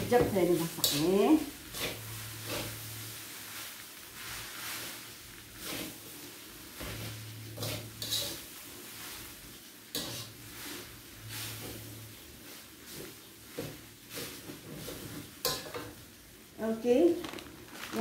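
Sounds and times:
metal spatula scraping a wok: 0:00.0 - 0:16.0.

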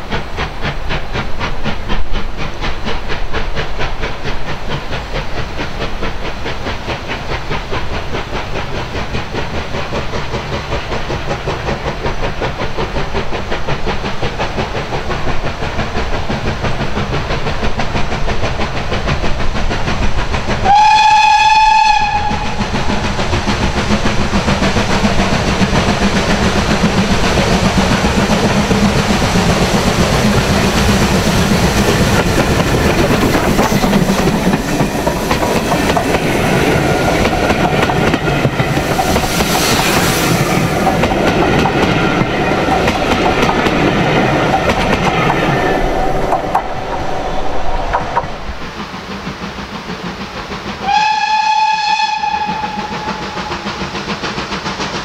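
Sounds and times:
hissing steam: 0:00.0 - 0:55.0
train rumble and wheel clatter: 0:00.0 - 0:55.0
steam whistle blast: 0:20.6 - 0:22.5, 0:50.8 - 0:53.6.

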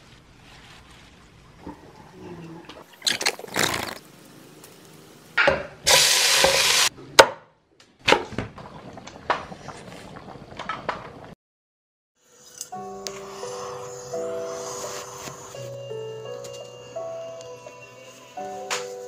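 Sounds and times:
burst of hiss: 0:12.8 - 0:15.6.

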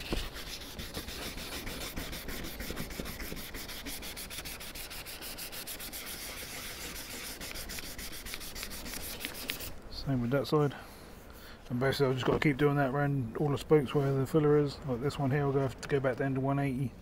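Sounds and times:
sandpaper rubbing on plastic: 0:00.0 - 0:09.7.

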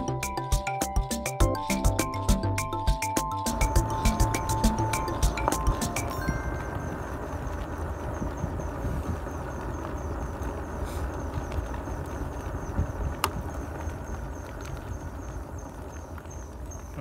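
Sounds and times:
faint high ticking: 0:00.0 - 0:17.0
low road rumble: 0:00.0 - 0:17.0
wind rushing over microphone: 0:03.5 - 0:17.0.

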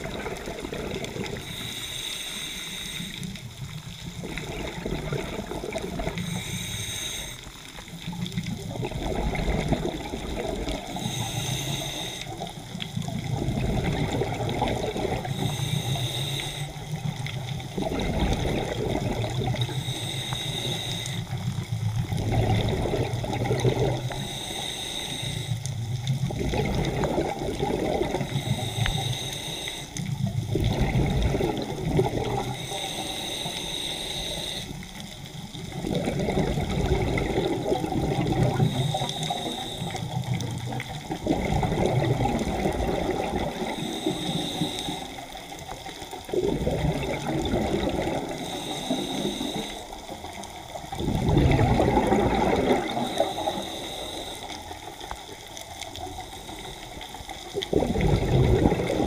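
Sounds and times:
gurgle of exhaust bubbles: 0:00.0 - 0:01.4, 0:03.9 - 0:06.3, 0:08.2 - 0:11.0, 0:12.9 - 0:15.4, 0:17.0 - 0:19.8, 0:21.4 - 0:24.2, 0:25.8 - 0:28.7, 0:30.2 - 0:32.6, 0:35.6 - 0:39.2, 0:40.3 - 0:43.9, 0:46.2 - 0:48.4, 0:50.8 - 0:53.5, 0:57.5 - 0:59.0
regulator inhale hiss: 0:01.1 - 0:03.8, 0:06.0 - 0:08.2, 0:10.7 - 0:13.1, 0:14.7 - 0:17.3, 0:19.3 - 0:21.7, 0:23.1 - 0:26.3, 0:28.1 - 0:30.2, 0:32.2 - 0:35.8, 0:38.2 - 0:41.1, 0:43.4 - 0:46.2, 0:48.0 - 0:50.8, 0:52.6 - 0:57.7.

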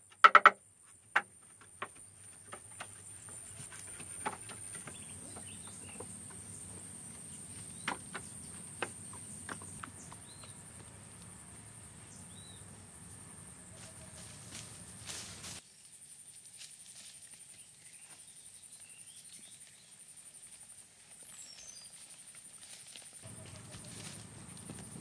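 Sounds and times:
bird chirps: 0:01.6 - 0:10.8.

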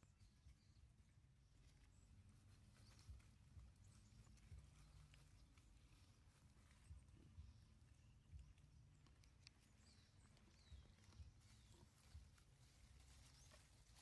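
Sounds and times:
soft low thumps: 0:02.9 - 0:09.0, 0:09.7 - 0:14.0.

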